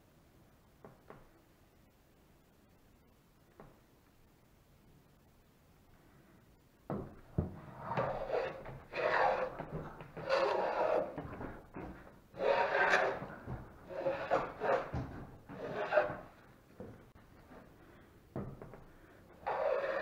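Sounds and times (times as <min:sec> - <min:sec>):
hand plane rasping on wood: 0:07.8 - 0:09.6, 0:10.2 - 0:11.2, 0:12.4 - 0:16.3, 0:19.5 - 0:20.0.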